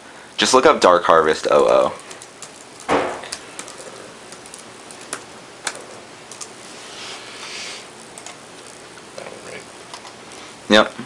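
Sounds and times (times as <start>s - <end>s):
laptop keyboard typing: 1.5s - 6.8s, 8.0s - 10.2s
computer mouse clicking: 2.0s - 6.6s.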